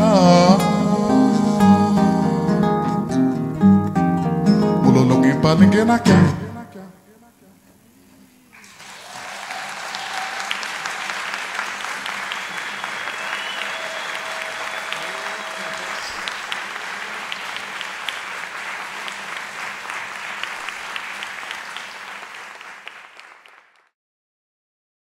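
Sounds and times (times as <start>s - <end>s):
audience applauding: 8.5s - 23.9s.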